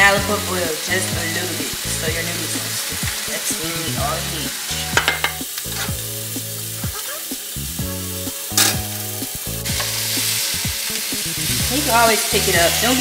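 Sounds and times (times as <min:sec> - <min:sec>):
chicken sizzling in a pan: 0:00.0 - 0:13.0
soft background music: 0:00.0 - 0:13.0.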